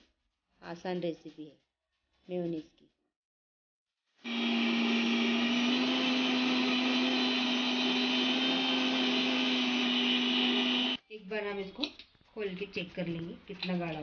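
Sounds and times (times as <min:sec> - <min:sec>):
mixer grinder motor humming: 0:04.2 - 0:11.0.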